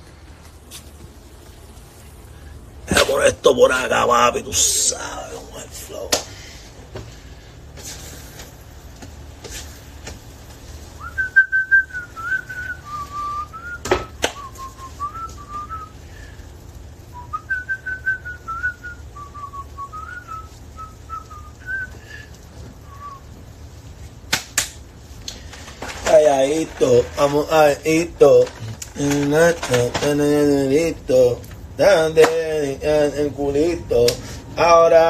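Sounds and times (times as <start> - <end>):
man whistling a tune: 11.0 - 16.0, 17.1 - 23.3.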